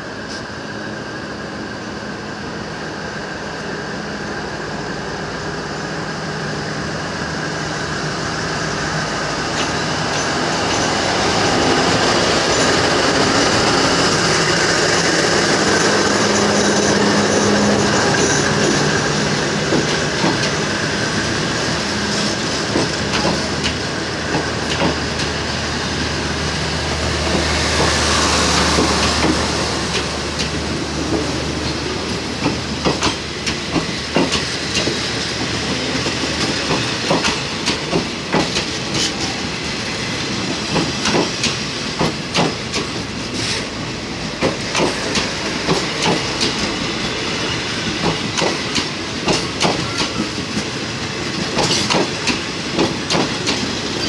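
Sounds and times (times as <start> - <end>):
diesel locomotive engine humming: 0.0 - 54.0
train wheels clacking over rail joints: 9.5 - 20.7, 22.1 - 25.4, 27.2 - 39.4, 40.4 - 43.7, 44.4 - 54.0.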